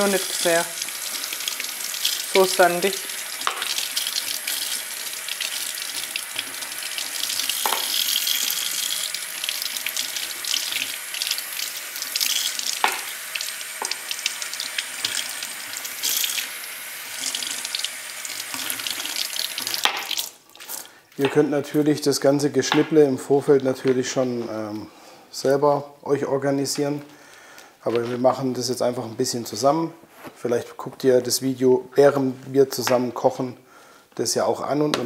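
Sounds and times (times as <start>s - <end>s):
tap running water: 0.0s - 21.4s.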